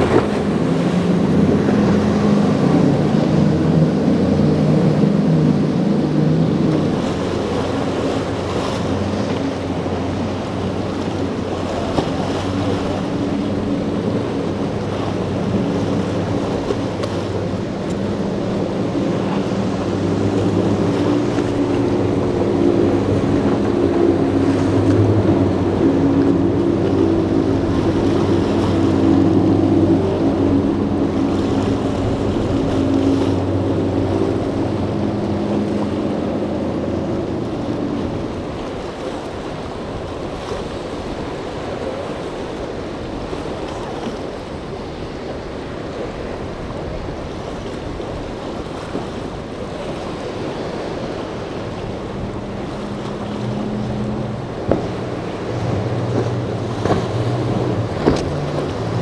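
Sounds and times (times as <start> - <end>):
choppy water: 0.0 - 59.0
outboard motor passing: 0.0 - 59.0
wind: 0.0 - 59.0.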